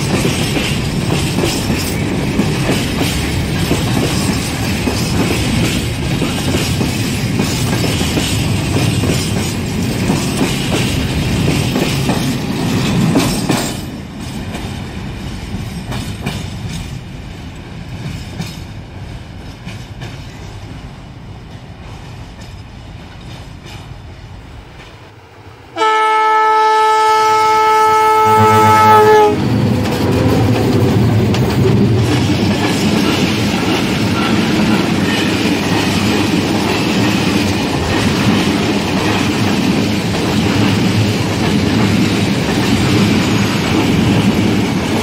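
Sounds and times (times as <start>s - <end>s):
train wheels clattering over rails: 0.0s - 25.2s, 28.4s - 45.0s
locomotive horn: 25.8s - 30.6s.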